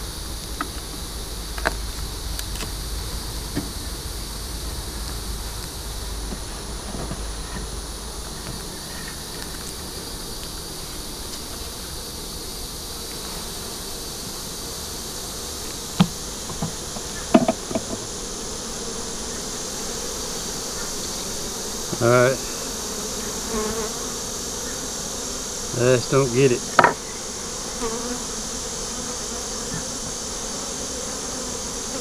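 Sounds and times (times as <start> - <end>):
bees buzzing: 0.0 - 32.0
hive tool clicks and knocks: 16.0 - 18.0, 26.8 - 27.0.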